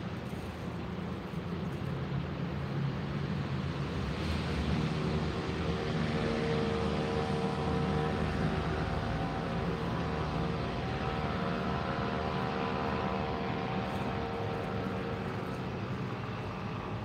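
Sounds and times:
vehicle low rumble: 0.0s - 17.0s.

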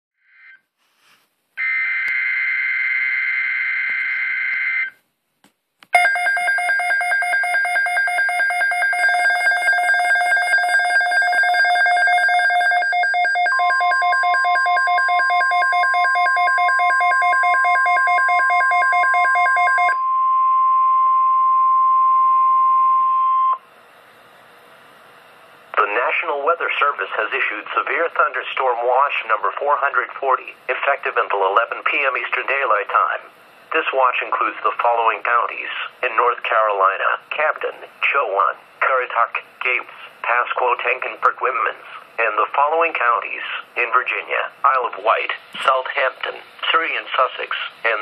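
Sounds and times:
steady warning alarm tone: 1.6s - 4.9s, 6.0s - 23.6s
pulsing alert alarm: 6.0s - 23.6s.

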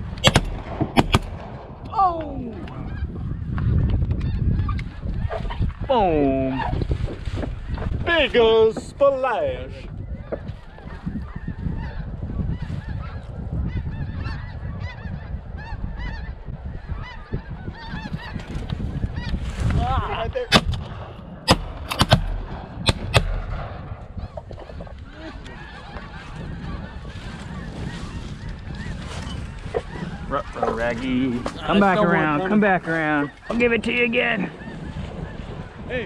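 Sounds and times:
shotgun shots: 0.1s - 1.7s, 20.5s - 24.0s
geese honking: 10.1s - 19.4s, 24.0s - 36.0s.

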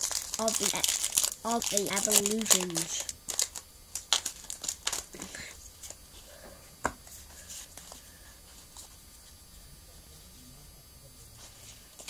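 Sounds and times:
foil pack crinkling: 0.0s - 6.0s.

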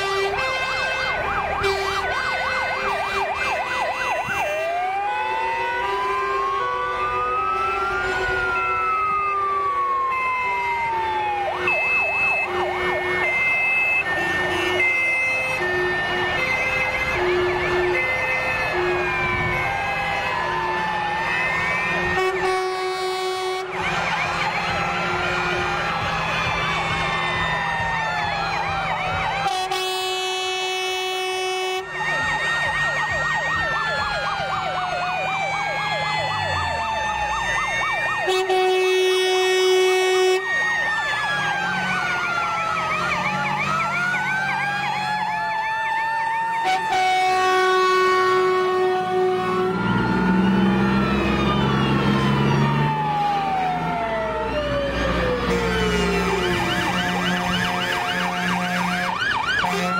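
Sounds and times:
long horn blasts: 0.0s - 4.8s, 5.5s - 10.2s, 11.6s - 19.8s, 21.8s - 26.2s, 29.4s - 32.0s, 38.2s - 40.5s, 46.6s - 52.7s, 55.4s - 59.9s
fire engine sirens wailing: 0.0s - 59.9s.

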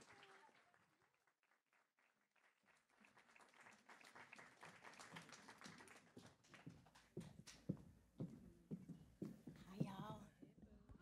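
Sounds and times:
faint audience applause: 0.0s - 7.2s.

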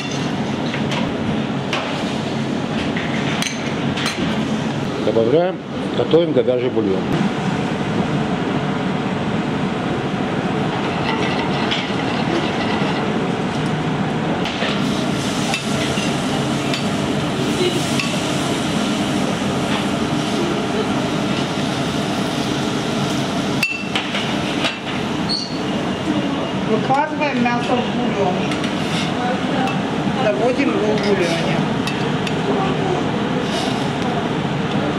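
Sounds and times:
gas range and grill running: 0.0s - 34.9s
food sizzling on grill: 14.8s - 19.4s.

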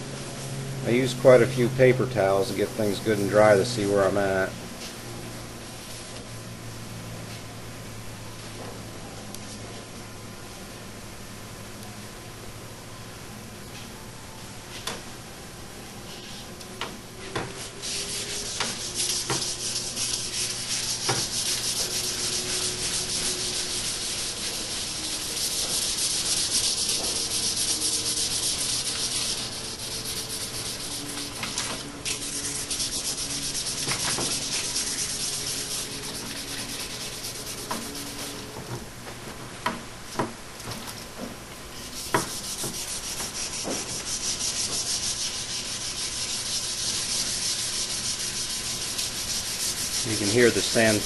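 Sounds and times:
sandpaper rubbing strokes: 17.5s - 38.5s, 41.8s - 51.0s.

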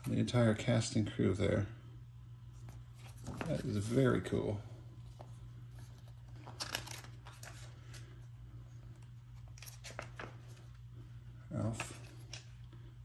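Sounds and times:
steady low hum: 0.0s - 13.0s
paper pages rustling: 2.6s - 4.2s, 5.0s - 8.2s, 9.3s - 10.8s.

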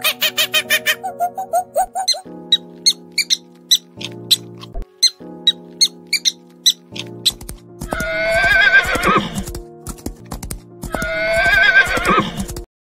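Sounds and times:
background music: 0.0s - 12.7s
horse whinnying: 7.8s - 9.5s, 10.9s - 12.5s.

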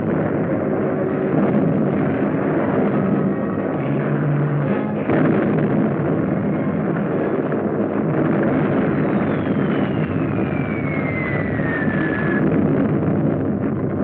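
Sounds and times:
whistle of falling projectile: 8.7s - 12.6s.

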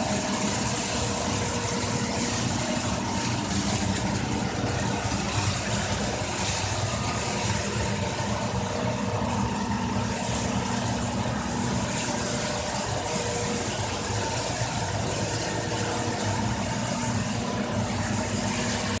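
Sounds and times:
factory machinery motor hum: 0.0s - 19.0s.

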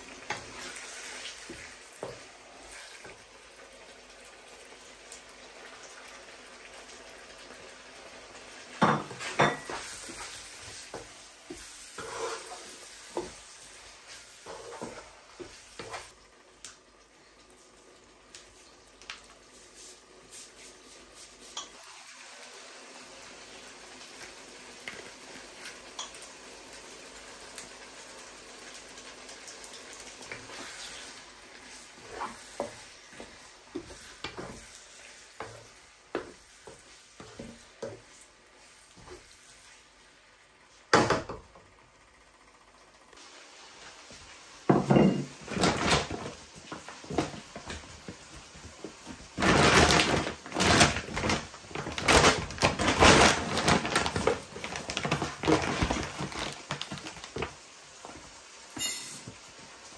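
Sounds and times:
curry simmering with pops: 0.0s - 19.5s, 21.4s - 38.2s
wooden spoon scraping a pan: 9.0s - 16.1s, 30.3s - 39.8s.

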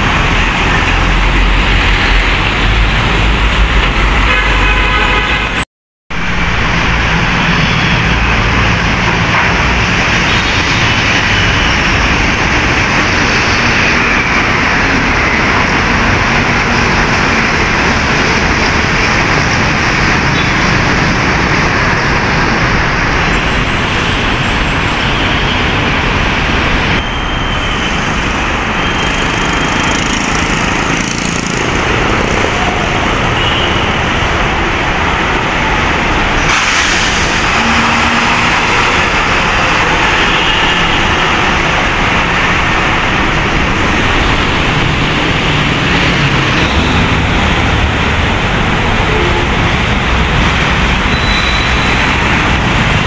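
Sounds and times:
heavy road traffic passing: 0.0s - 53.0s.

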